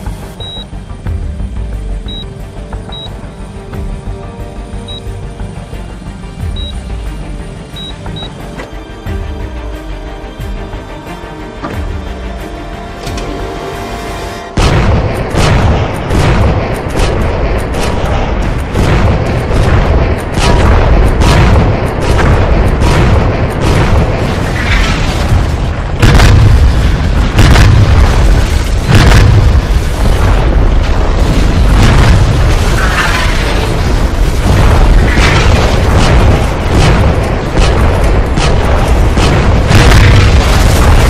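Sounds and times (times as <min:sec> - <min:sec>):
music: 0:00.0 - 0:41.0
heavy low rumble: 0:14.5 - 0:41.0
explosion booms: 0:14.6 - 0:41.0.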